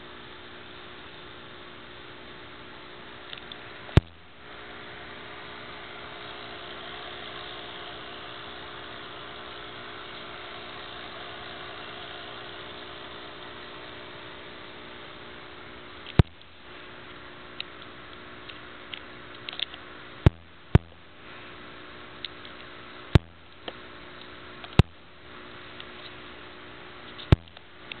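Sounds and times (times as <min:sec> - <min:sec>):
aquarium equipment hum and hiss: 0:00.0 - 0:28.0
sharp clicks: 0:16.0 - 0:16.5, 0:27.1 - 0:28.0.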